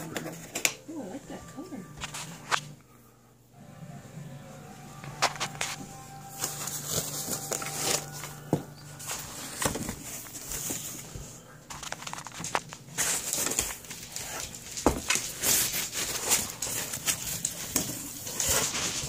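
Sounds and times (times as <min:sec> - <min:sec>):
cardboard and foam rustling: 0:05.1 - 0:19.0.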